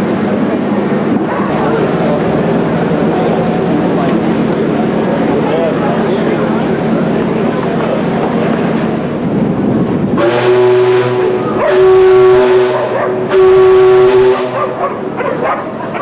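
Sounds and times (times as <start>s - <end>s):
steam whistle blasts: 10.2s - 14.8s.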